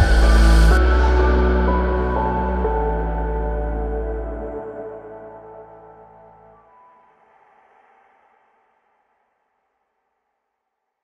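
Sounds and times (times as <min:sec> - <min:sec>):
music with sustained notes: 0:00.0 - 0:07.3.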